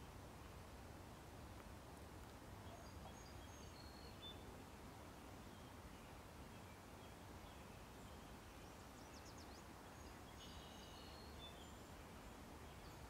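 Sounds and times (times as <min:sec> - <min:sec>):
bird chirps: 0:07.6 - 0:11.9.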